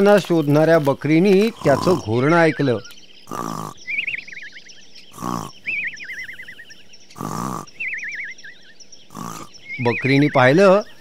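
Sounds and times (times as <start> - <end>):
cartoon wolf snoring with whistle: 3.3 - 3.8, 5.1 - 6.4, 7.2 - 7.8, 9.1 - 9.5.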